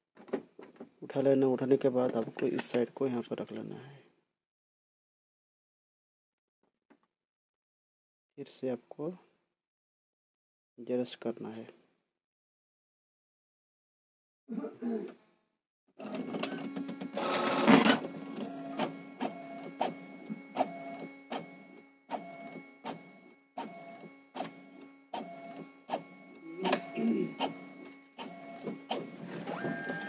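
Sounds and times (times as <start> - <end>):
printer loud rush: 16.0 - 30.0
printer motor hum: 16.0 - 30.0
printer sharp clicks: 16.0 - 30.0.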